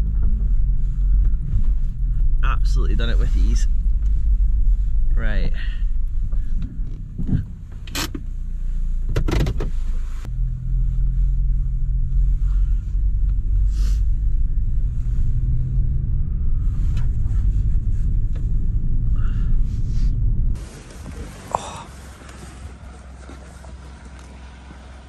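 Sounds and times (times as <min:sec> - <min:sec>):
car engine droning: 0:00.0 - 0:25.0.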